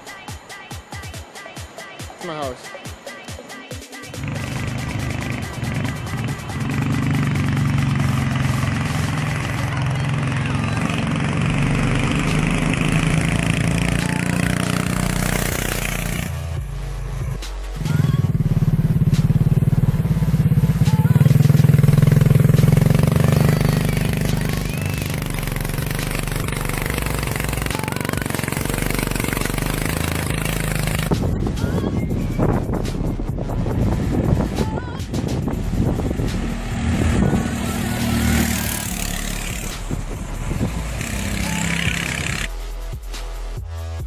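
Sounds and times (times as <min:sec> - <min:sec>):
go-kart engine at high revs: 0:04.2 - 0:16.4, 0:17.8 - 0:31.2, 0:35.6 - 0:42.5.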